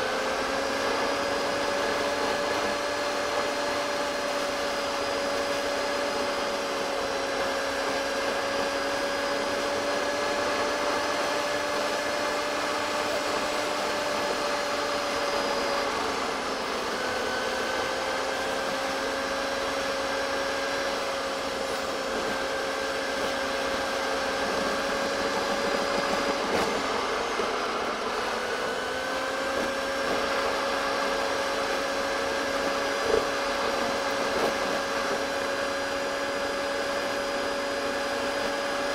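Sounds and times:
high gearbox whine: 8.2s - 35.4s.

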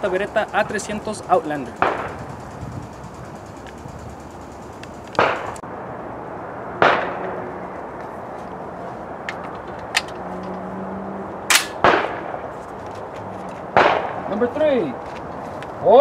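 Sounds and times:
shotgun shots: 1.7s - 2.2s, 5.2s - 5.6s, 11.5s - 12.4s, 13.8s - 14.3s.

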